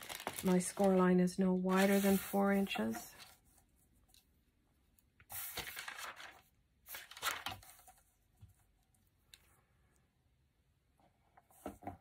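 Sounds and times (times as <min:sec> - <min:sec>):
paper rustling on plastic board: 0:00.0 - 0:03.4, 0:05.3 - 0:08.1.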